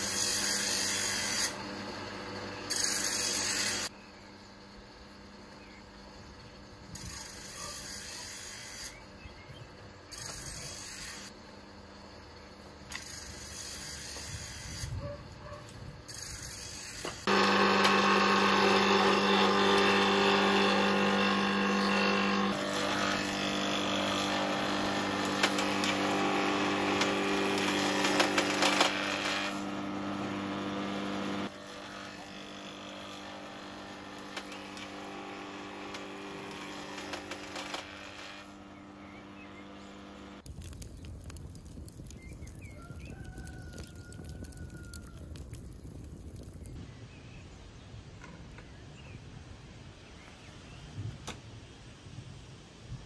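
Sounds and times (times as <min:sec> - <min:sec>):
electric power tool whine: 0:00.0 - 0:03.9, 0:16.1 - 0:40.5
hiss: 0:12.9 - 0:15.0.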